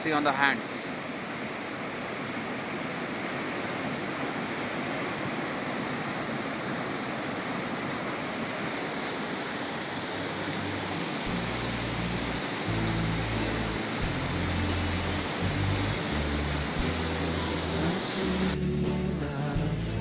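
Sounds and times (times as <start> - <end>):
stream rushing over rocks: 0.0 - 18.6
background music: 10.2 - 20.0.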